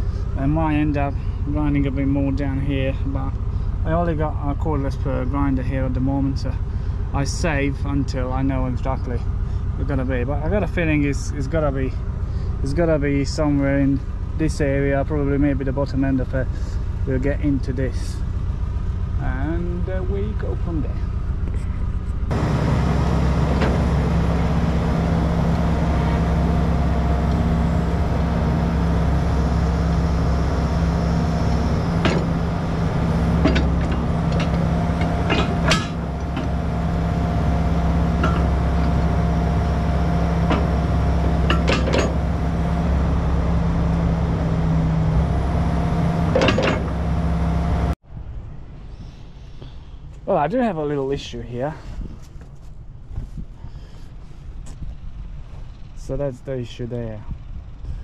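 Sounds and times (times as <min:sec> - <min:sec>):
excavator diesel engine running: 0:00.0 - 0:48.0
sharp metal clanks: 0:22.3 - 0:45.5, 0:46.2 - 0:47.2.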